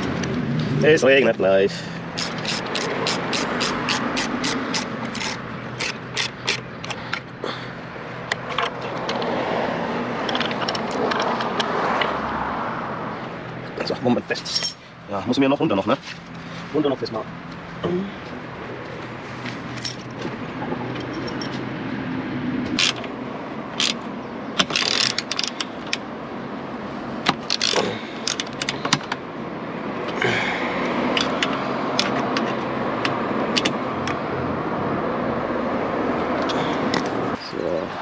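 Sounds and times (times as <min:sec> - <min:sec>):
metallic clicks of hand tools: 0:02.2 - 0:07.2, 0:23.8 - 0:24.0, 0:24.6 - 0:26.0, 0:27.2 - 0:29.2.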